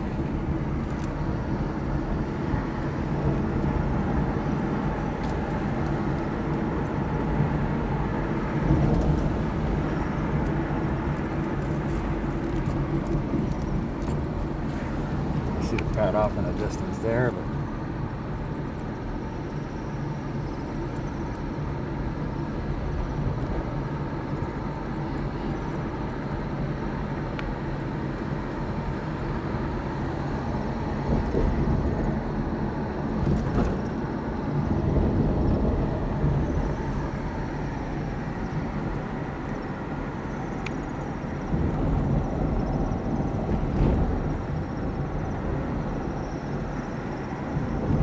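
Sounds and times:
car engine running: 0.0s - 48.0s.

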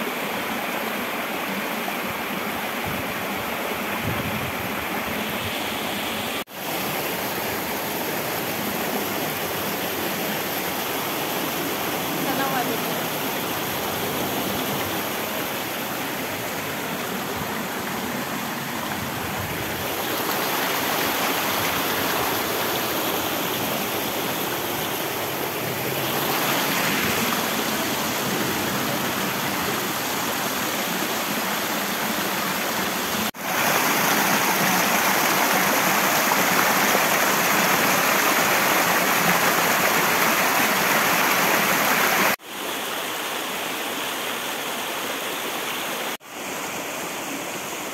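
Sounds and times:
rushing stream water: 0.0s - 47.9s.

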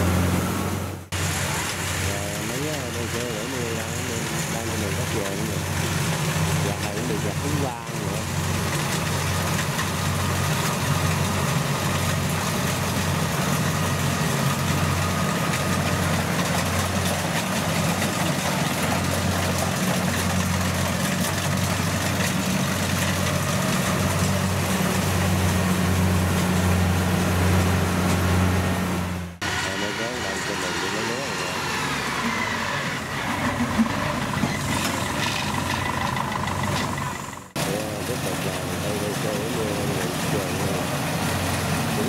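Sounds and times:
combine harvester diesel engine drone: 0.0s - 42.0s.

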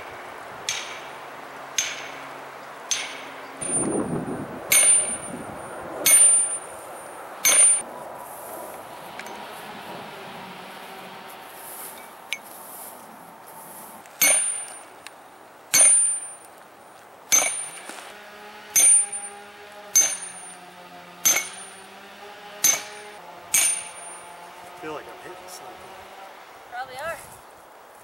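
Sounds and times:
sledgehammer clanging on steel: 0.7s - 1.2s, 1.8s - 2.3s, 2.9s - 4.0s, 4.7s - 5.3s, 7.4s - 7.8s, 14.2s - 14.9s, 15.8s - 16.4s, 17.3s - 17.9s, 18.8s - 20.6s, 21.2s - 21.8s, 22.6s - 24.3s.

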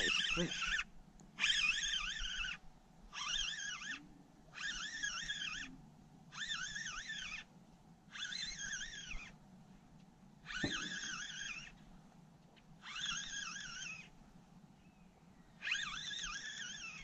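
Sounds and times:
fishing reel whining: 0.0s - 7.5s, 8.1s - 9.4s, 10.4s - 11.8s, 12.8s - 14.2s, 15.6s - 17.0s.

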